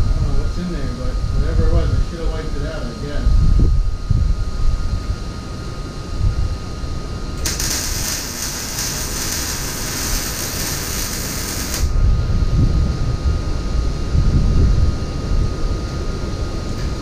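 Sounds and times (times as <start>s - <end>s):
welding arc hissing and crackling: 7.4s - 12.0s.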